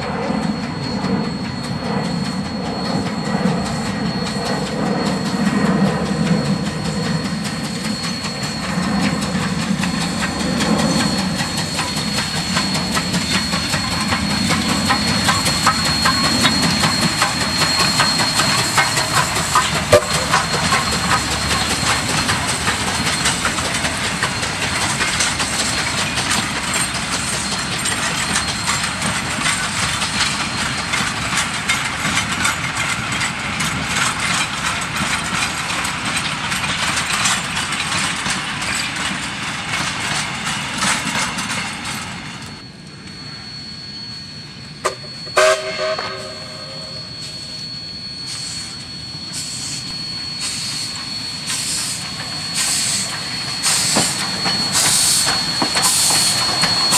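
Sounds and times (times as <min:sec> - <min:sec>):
steam locomotive running: 0:00.0 - 0:56.9
wheels clattering over rail joints: 0:07.4 - 0:42.6.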